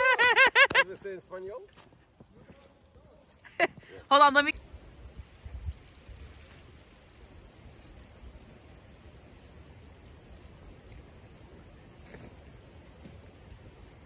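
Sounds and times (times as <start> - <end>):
creek water flowing: 0.0 - 14.0.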